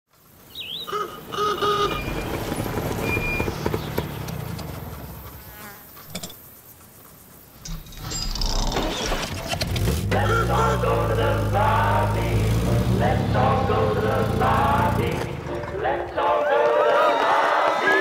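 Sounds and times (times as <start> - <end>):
fly buzzing: 5.2 - 7.4
car engine rumbling: 8.9 - 15.9.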